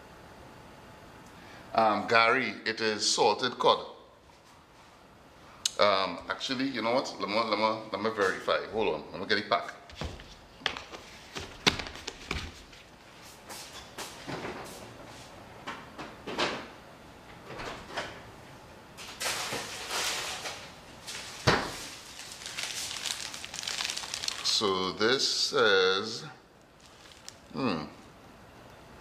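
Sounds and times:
plastic bag rustling: 19.1 - 24.9, 26.7 - 27.6.

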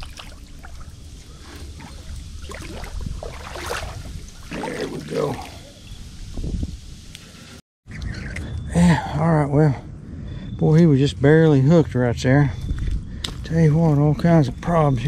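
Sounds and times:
wind rumble on microphone: 0.0 - 5.0, 5.8 - 7.2, 9.7 - 15.0
fish splashing at water surface: 0.0 - 5.8.

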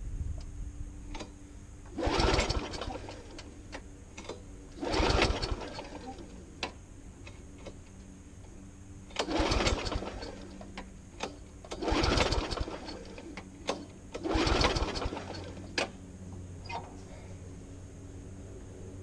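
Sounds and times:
lawnmower engine turning over: 1.1 - 7.9, 9.1 - 16.0
recoil starter cord pulls: 1.9 - 7.8, 9.1 - 16.0.

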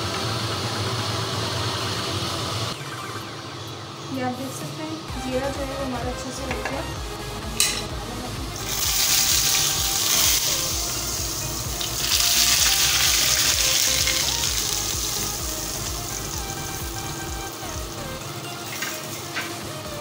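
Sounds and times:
faint music: 2.7 - 20.0
hot oil sizzling: 8.5 - 20.0.

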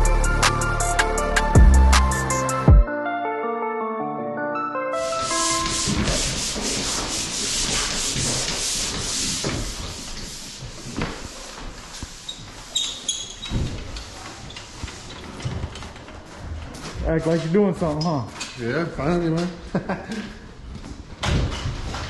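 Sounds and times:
drywall pole sander scraping: 5.0 - 18.0.

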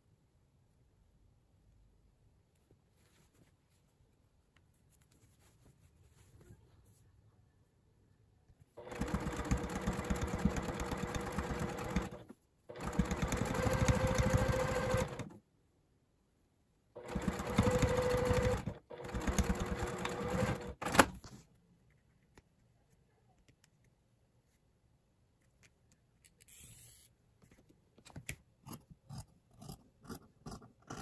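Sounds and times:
sewing machine stitching: 8.8 - 15.4, 17.0 - 21.2.

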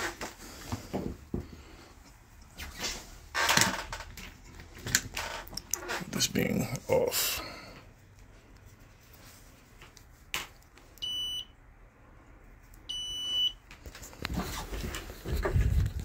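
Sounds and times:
short high beeps: 11.0 - 11.5.

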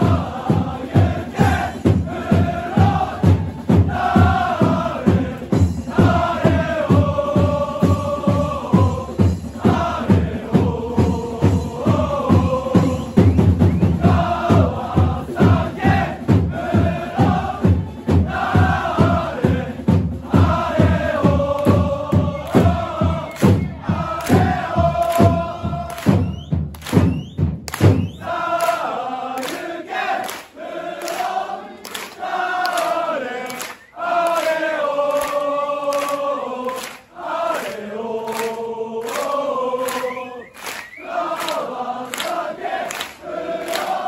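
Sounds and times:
steady low drum beat: 0.0 - 28.5
crowd singing a chant: 0.0 - 44.0
hand claps: 21.6 - 21.8, 22.4 - 44.0.

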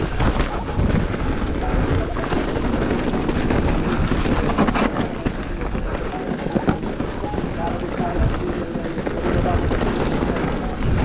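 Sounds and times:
bike rattling over bumps: 0.0 - 11.0
bike tyre noise on dirt: 0.0 - 11.0
wind rush on microphone: 0.0 - 11.0.

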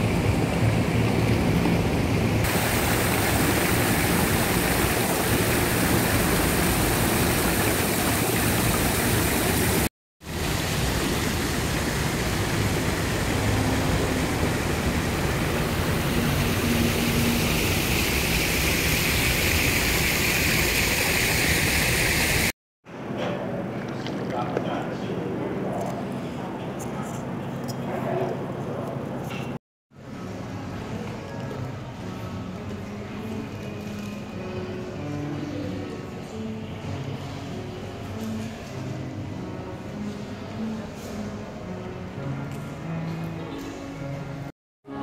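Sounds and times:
city street traffic rushing: 0.0 - 7.3, 10.4 - 20.0.

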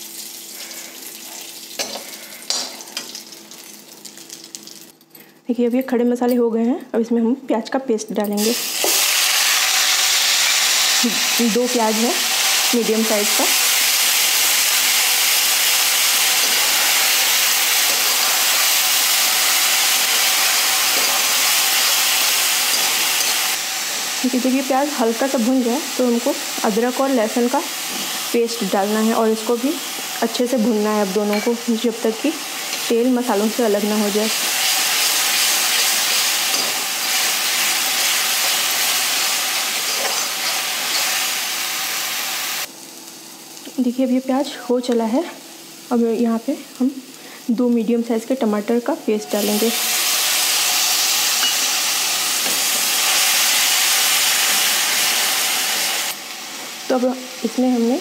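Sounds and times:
onion paste sizzling in oil: 0.0 - 4.9, 8.4 - 58.0
metal spoon stirring: 16.4 - 23.5.

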